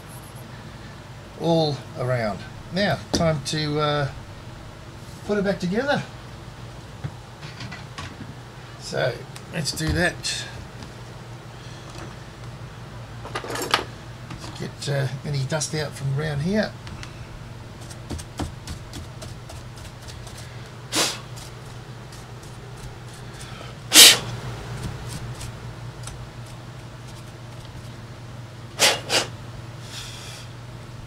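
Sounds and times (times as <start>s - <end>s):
steady low hum: 0.0s - 31.0s
short puffs of air: 20.9s - 21.3s, 23.9s - 24.3s, 28.8s - 30.6s.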